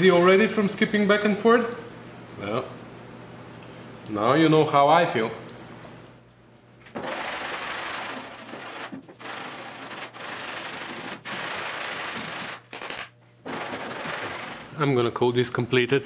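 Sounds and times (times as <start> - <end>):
sandpaper rasping: 7.0 - 12.6, 13.5 - 14.7.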